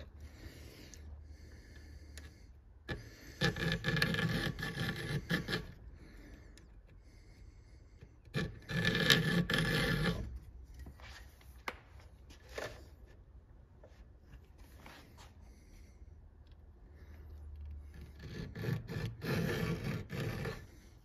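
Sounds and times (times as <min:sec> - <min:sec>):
file rasping on saw chain: 0:02.9 - 0:05.9, 0:08.2 - 0:10.4, 0:17.9 - 0:21.0.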